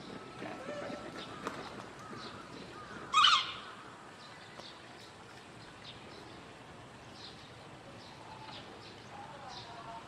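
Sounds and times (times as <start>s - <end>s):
macaque shrill call: 3.1s - 3.7s.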